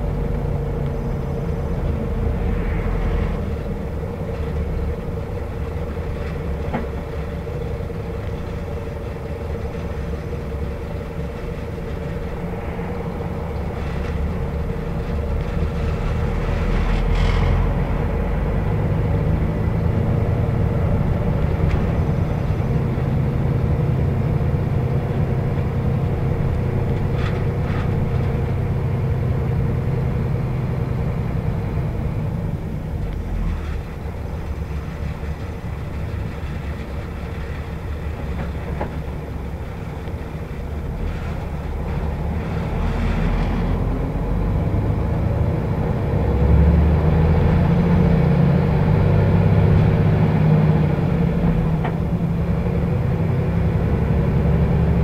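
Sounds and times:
bus diesel engine: 0.0s - 55.0s
low whine: 0.0s - 55.0s
road noise: 0.0s - 55.0s.

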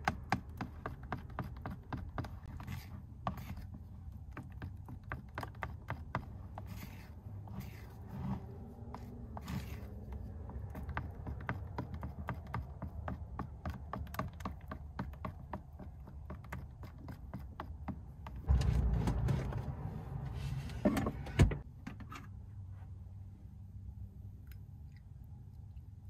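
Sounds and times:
spatula scraping a bowl: 5.5s - 12.5s
low rumble: 18.5s - 21.6s.

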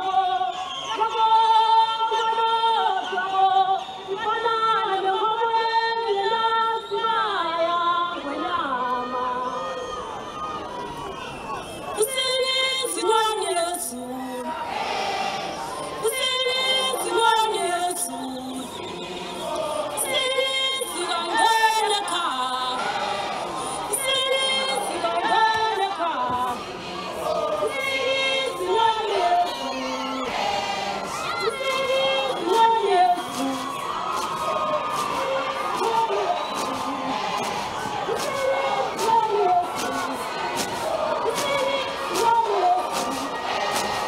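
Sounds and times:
high voices singing together: 12.0s - 44.0s.

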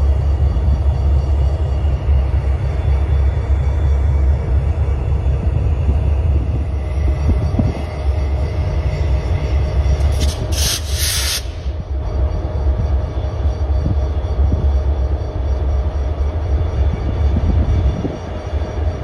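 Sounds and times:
freight train rumbling past: 0.0s - 19.0s
burst of high-pitched noise: 10.1s - 11.8s.

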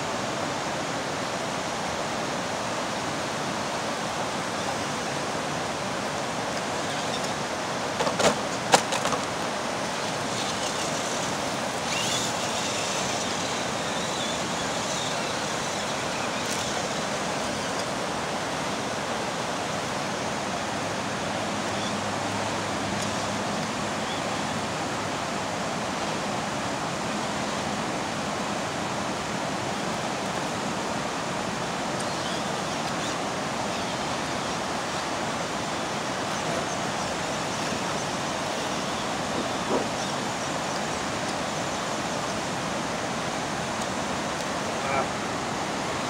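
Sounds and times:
river water rushing over rocks: 0.0s - 46.0s.

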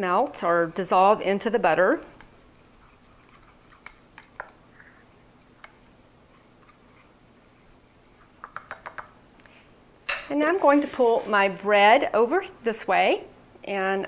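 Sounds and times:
spatula clicking on saucepan: 8.4s - 9.2s.

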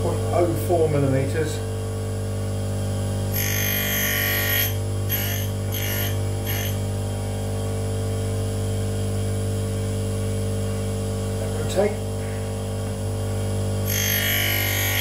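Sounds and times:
tool grinder running: 3.2s - 7.0s, 13.4s - 15.0s
grinding wheel grinding metal: 3.3s - 6.8s, 13.8s - 15.0s.

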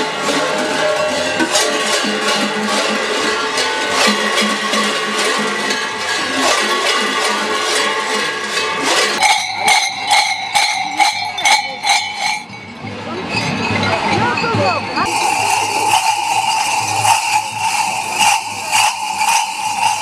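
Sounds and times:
large bells clanging: 0.0s - 20.0s
single bell ringing: 9.2s - 14.6s.

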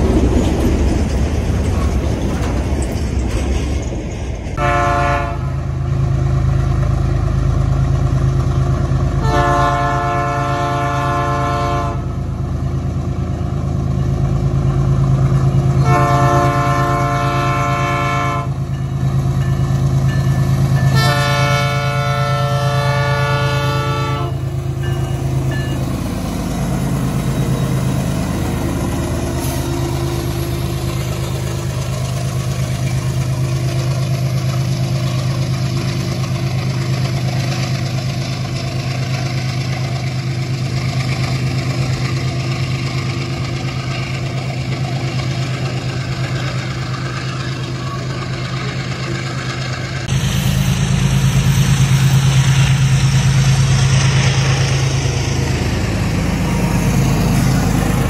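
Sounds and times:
diesel engine drone: 0.0s - 58.0s
locomotive air horn blasts: 4.6s - 5.7s, 9.2s - 12.2s, 15.8s - 18.6s, 20.9s - 24.4s.

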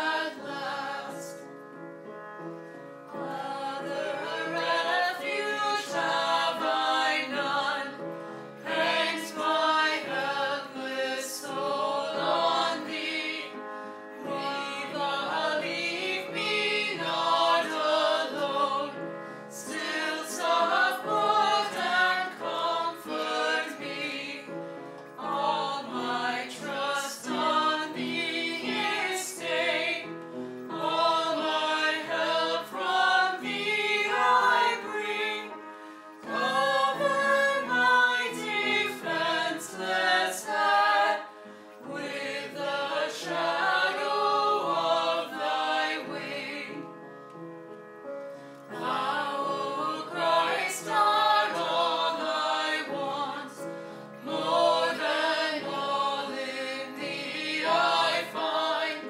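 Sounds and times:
choir singing a hymn: 0.0s - 1.8s, 3.1s - 47.0s, 48.6s - 59.0s.

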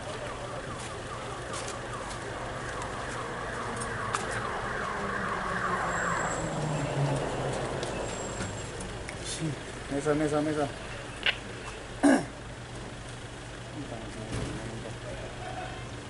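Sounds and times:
siren yelping: 0.0s - 8.8s.

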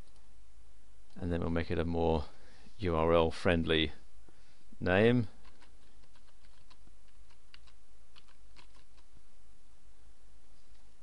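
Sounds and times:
steady low hum: 0.0s - 11.0s
keyboard typing clicks: 5.4s - 9.0s.

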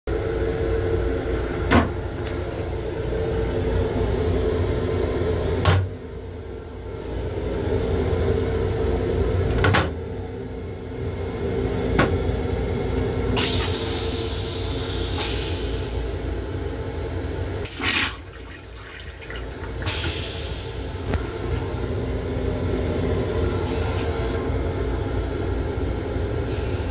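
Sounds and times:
railcar hum and rumble: 0.1s - 26.9s
toilet flushing hiss: 13.4s - 16.7s, 17.6s - 21.8s.

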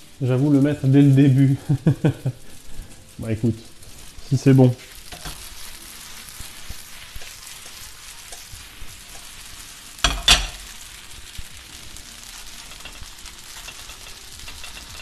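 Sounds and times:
food sizzling in hot oil: 0.0s - 15.0s
spatula stirring food: 4.8s - 15.0s
pan clattering: 12.5s - 15.0s.

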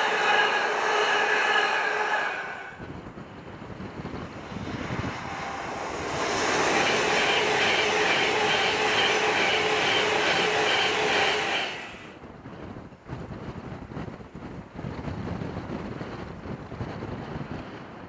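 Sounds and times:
electric train passing: 0.0s - 12.3s.

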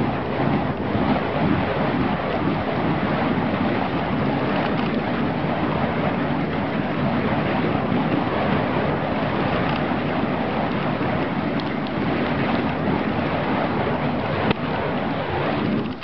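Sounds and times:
wind across microphone: 0.0s - 16.0s.

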